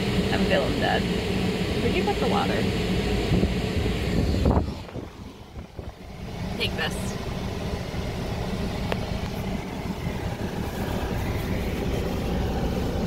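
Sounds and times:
car engine low rumble: 0.0 - 13.0
rush of air: 2.6 - 6.0, 8.4 - 13.0.

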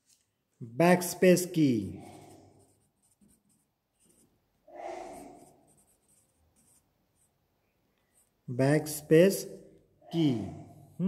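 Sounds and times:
pencil scratching on paper: 1.8 - 7.4.

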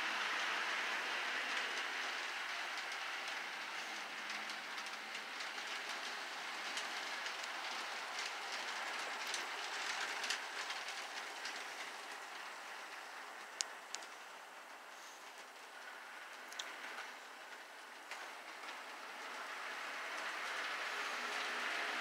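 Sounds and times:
model train rolling hiss: 0.0 - 17.3
wheels clicking over rail joints: 0.0 - 22.0.

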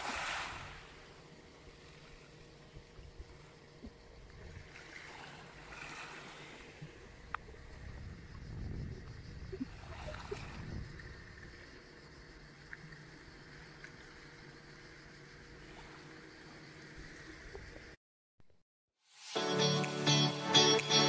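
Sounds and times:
water lapping at beach: 0.0 - 18.0
faint ticks: 2.8 - 4.5, 6.8 - 7.6, 11.4 - 15.2.

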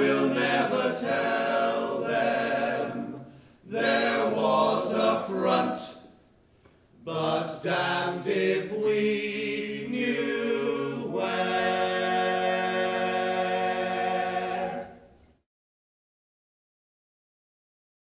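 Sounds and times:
male voices singing in harmony: 0.0 - 6.1, 7.0 - 15.1.

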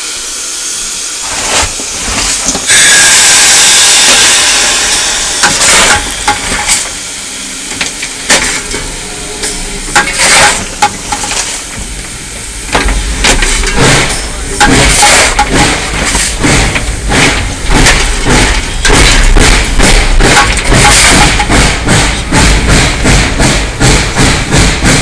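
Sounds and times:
hissing steam burst: 0.0 - 25.0
metallic clanks and knocks: 5.4 - 6.9, 7.7 - 12.1, 12.7 - 25.0.

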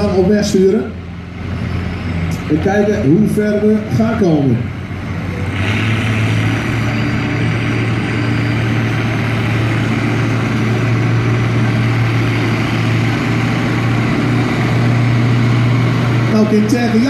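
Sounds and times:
tractor diesel engines under load: 0.0 - 17.0.

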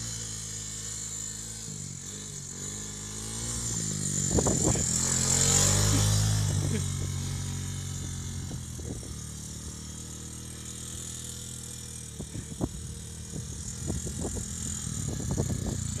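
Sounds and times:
atv engine running: 0.0 - 16.0.

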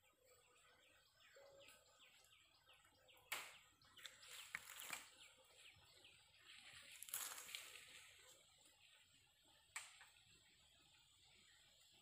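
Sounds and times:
sharp crackle: 3.3 - 5.3, 6.6 - 8.4
rustling: 6.6 - 8.3.

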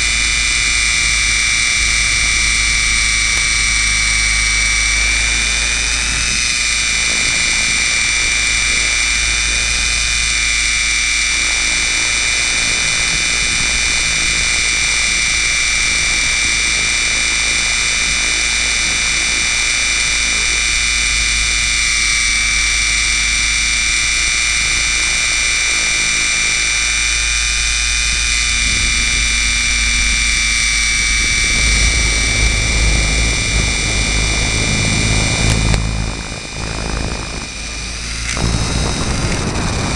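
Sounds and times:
low rumble: 0.0 - 18.7, 27.0 - 39.9
helicopter motor whine: 0.0 - 39.9.

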